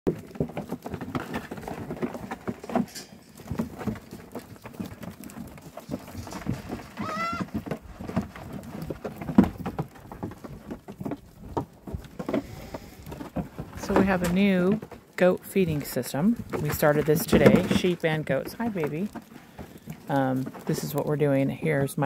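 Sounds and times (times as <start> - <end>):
goats knocking feed pans: 0.1 - 22.0
hooves shuffling: 0.1 - 22.0
goat bleat: 7.0 - 7.5.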